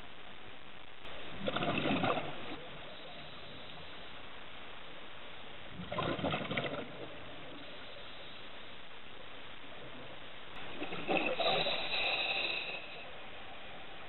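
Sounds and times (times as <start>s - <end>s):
steady underwater hiss: 0.0s - 14.0s
regulator exhaust bubbles: 1.0s - 3.1s, 5.8s - 7.7s.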